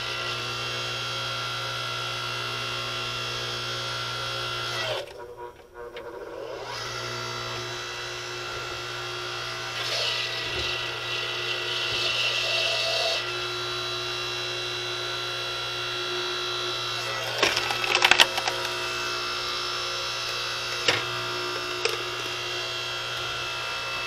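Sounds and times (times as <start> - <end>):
log splitter motor humming: 0.0 - 5.2, 6.4 - 24.0
wood cracking: 17.0 - 19.5.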